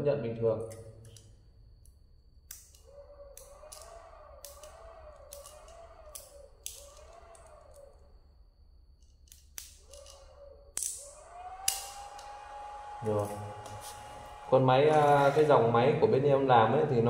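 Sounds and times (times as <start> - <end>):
clamps clicking onto battery: 2.5 - 8.0, 9.0 - 14.1
inverter warbling whine: 2.8 - 8.4, 10.3 - 17.0.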